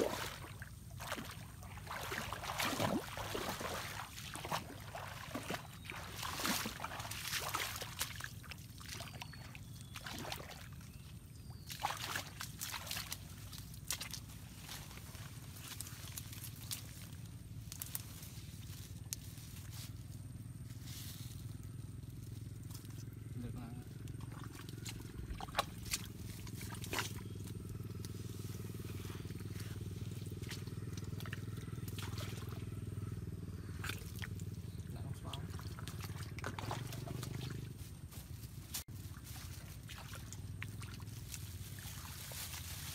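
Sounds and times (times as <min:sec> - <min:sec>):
feet splashing through water and mud: 0:00.0 - 0:19.9, 0:24.0 - 0:42.9
steady low hum: 0:00.0 - 0:42.9
crackles and rustles of roots: 0:11.6 - 0:32.8, 0:33.7 - 0:42.9.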